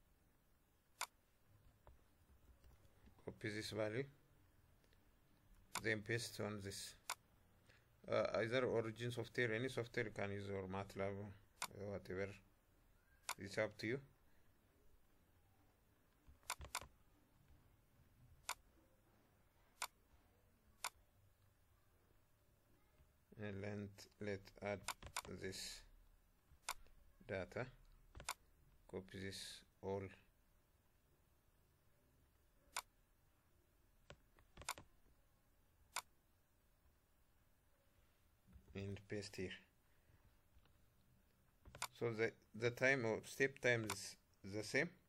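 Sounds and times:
computer mouse clicking: 1.0 - 1.2, 13.2 - 13.5, 16.2 - 17.0, 18.4 - 18.7, 20.8 - 21.0, 24.7 - 25.4, 26.5 - 27.0, 27.8 - 28.4, 32.7 - 32.9, 34.1 - 34.9, 35.9 - 36.1, 41.6 - 42.0, 43.6 - 44.1.

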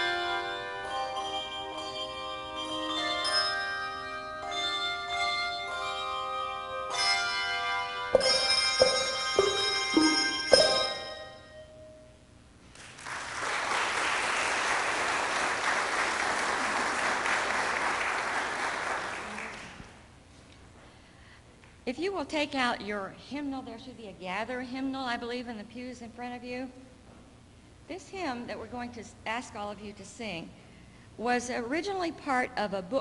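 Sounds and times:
handbell choir ringing: 1.0 - 11.7
audience applauding: 12.8 - 20.0.

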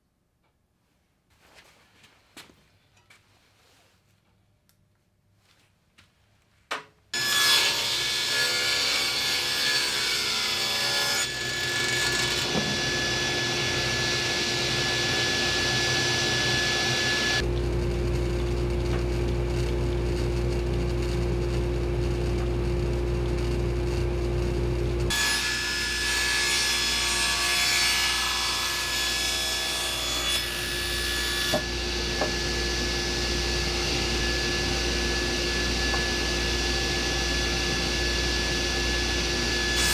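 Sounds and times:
saw blade cutting plywood: 7.2 - 17.4
table saw motor whine: 7.2 - 17.5, 25.1 - 39.9.

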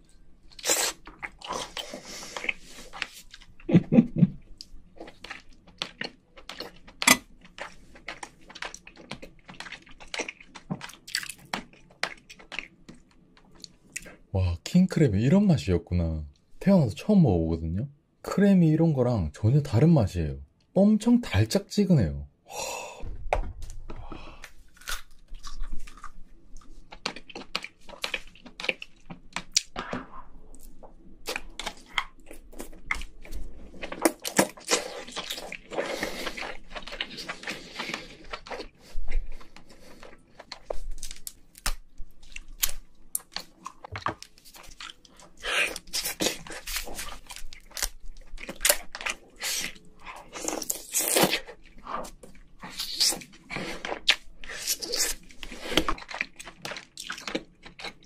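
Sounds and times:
crab shell crunching and crackling: 4.5 - 14.3, 24.4 - 58.0
wet chewing: 4.5 - 14.3, 24.4 - 58.0.

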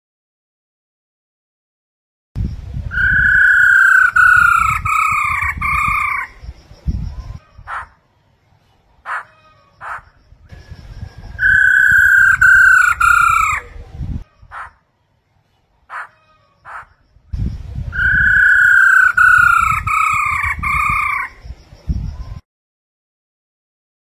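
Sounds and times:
short bird calls: 7.2 - 10.8, 11.4 - 17.1.

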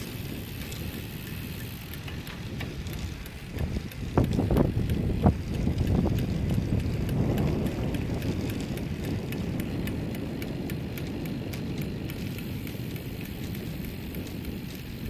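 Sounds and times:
light regular ticking: 0.0 - 15.0
road rumble: 0.0 - 15.0
wind rushing over microphone: 0.0 - 15.0.

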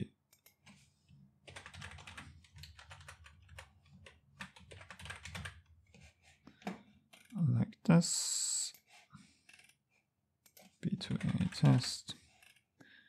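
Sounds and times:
keyboard typing: 0.3 - 7.4, 10.4 - 12.6.

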